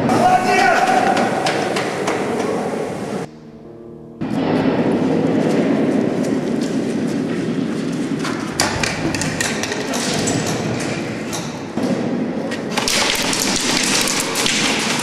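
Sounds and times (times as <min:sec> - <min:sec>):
airsoft gun shots: 0:11.8 - 0:15.0.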